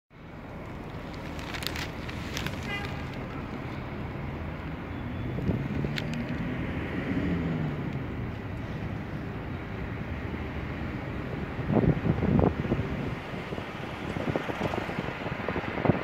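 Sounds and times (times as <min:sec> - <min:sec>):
locomotive engine rumbling: 0:00.2 - 0:06.4.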